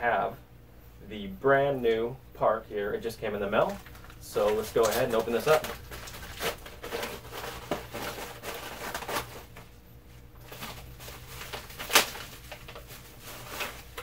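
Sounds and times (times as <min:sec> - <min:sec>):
plastic packaging crinkling: 0:03.5 - 0:09.8, 0:10.4 - 0:14.0
plastic ripping: 0:03.6 - 0:09.7, 0:10.4 - 0:14.0.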